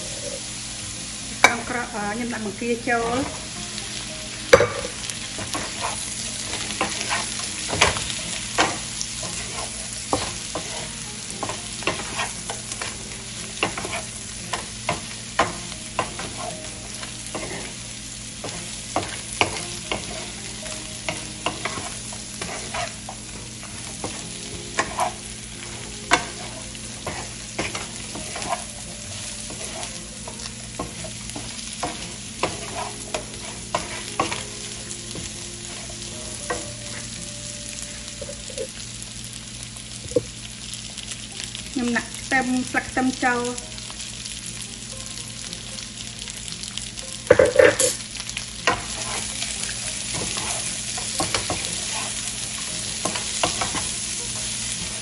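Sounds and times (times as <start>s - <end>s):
shrimp sizzling in oil: 0.0s - 55.0s
spatula scraping pan: 4.6s - 37.1s, 48.6s - 55.0s.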